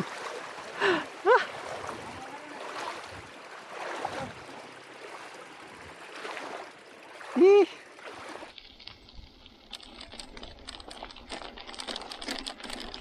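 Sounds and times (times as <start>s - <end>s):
splashing of people wading: 0.0s - 8.6s
river running over stones: 0.0s - 13.0s.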